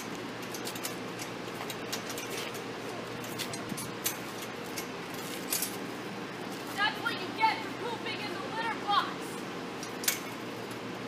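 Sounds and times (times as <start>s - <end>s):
steady low hum: 0.0s - 11.0s
metal gate latch clicks and rattles: 9.8s - 10.4s.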